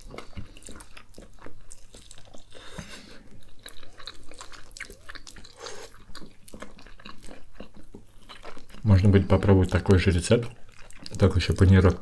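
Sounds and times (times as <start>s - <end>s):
people chewing chicken: 0.0s - 12.0s.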